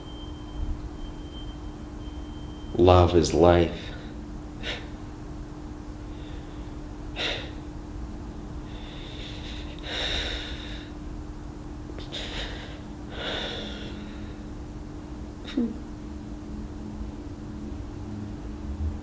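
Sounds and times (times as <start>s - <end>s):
faint steady hum: 0.0s - 19.0s
man breathing through nose: 6.1s - 7.6s, 8.7s - 11.0s, 12.0s - 14.5s.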